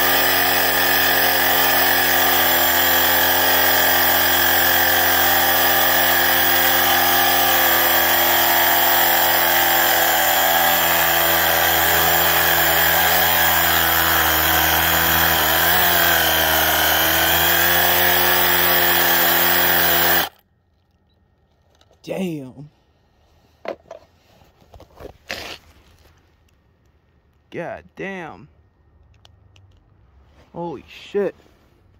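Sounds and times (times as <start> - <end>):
electric motor whining: 0.0 - 20.4.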